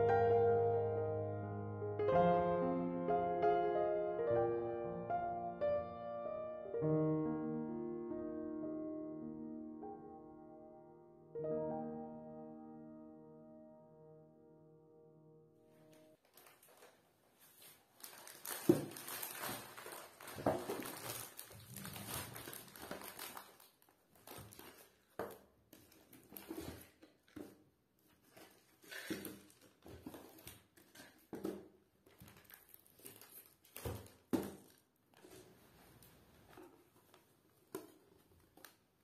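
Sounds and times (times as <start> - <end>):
bag and packaging rustling: 16.1 - 38.8.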